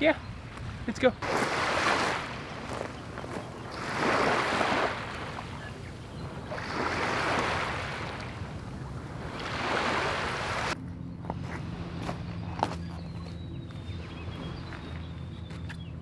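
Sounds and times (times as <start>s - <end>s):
small waves on pebbly beach: 1.2s - 8.5s, 9.1s - 10.8s.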